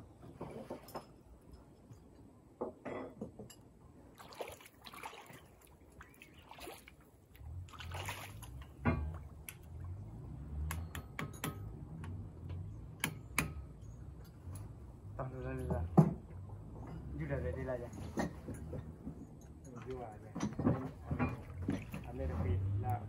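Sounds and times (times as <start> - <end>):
river water splashing: 4.1 - 10.8, 21.2 - 23.0
low uneven rumble: 13.7 - 23.0.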